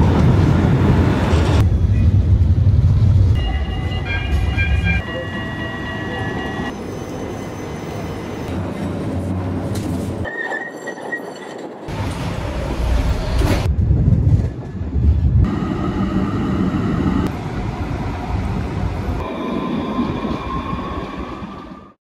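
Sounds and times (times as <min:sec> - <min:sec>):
tram rumbling on rails: 0:00.0 - 0:22.0
wheel squeal: 0:10.2 - 0:11.7.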